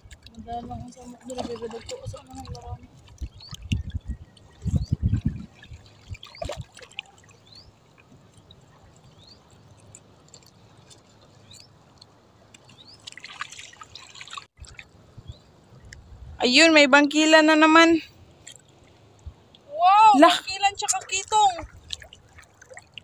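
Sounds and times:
light water splashes: 0:00.0 - 0:16.1, 0:17.2 - 0:23.0.

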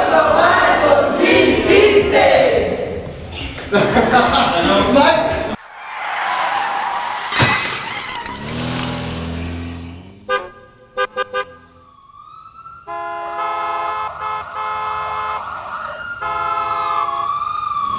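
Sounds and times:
horn-like tones: 0:10.2 - 0:11.8, 0:12.9 - 0:15.5, 0:16.2 - 0:17.3
siren wailing: 0:11.6 - 0:17.9.

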